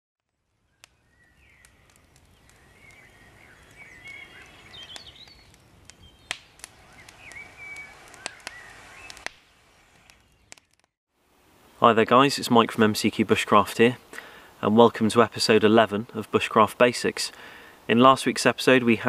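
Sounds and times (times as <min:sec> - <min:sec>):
campfire wood snapping: 0:00.2 - 0:11.0, 0:14.0 - 0:14.5
birds singing: 0:00.6 - 0:10.6.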